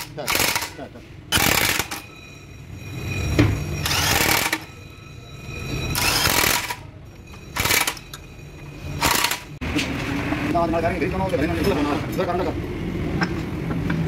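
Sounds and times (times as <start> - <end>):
electric drill running: 3.8 - 4.6, 6.0 - 6.8.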